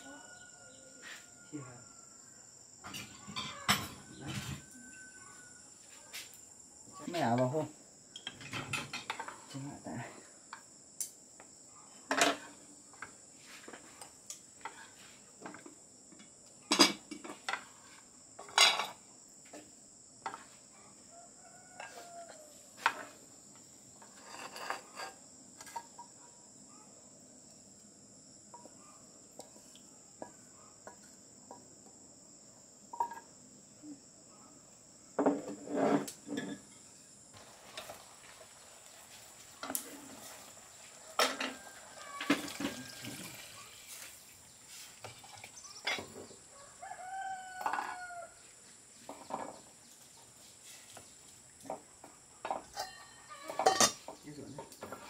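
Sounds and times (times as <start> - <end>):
insects chirring: 0.0 - 55.0
utensils clattering on plate: 8.2 - 9.5, 12.1 - 12.5, 18.4 - 19.0, 24.0 - 26.0, 41.2 - 41.6, 52.5 - 55.0
spatula scraping a frying pan: 24.0 - 26.0, 35.4 - 36.7.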